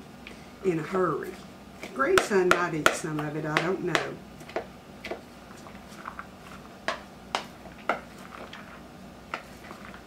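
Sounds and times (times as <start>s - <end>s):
wooden spoon knocking bowl: 2.2s - 5.2s, 6.8s - 8.0s.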